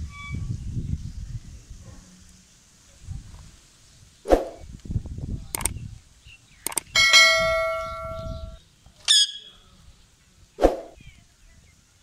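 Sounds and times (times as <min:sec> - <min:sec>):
button clicks: 0:05.6 - 0:05.8, 0:06.7 - 0:06.9
bell ding: 0:07.0 - 0:08.4.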